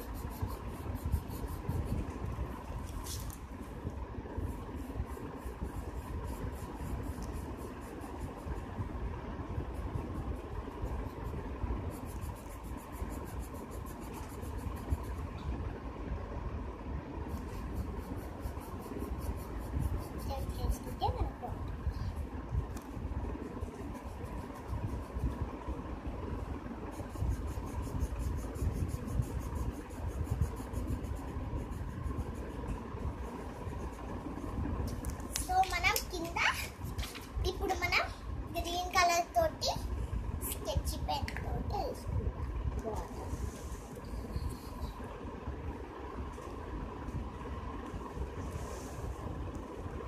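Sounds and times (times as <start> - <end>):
pencil scratching on paper: 0.0 - 15.4, 17.3 - 21.6, 22.2 - 34.6
low hum: 0.0 - 50.0.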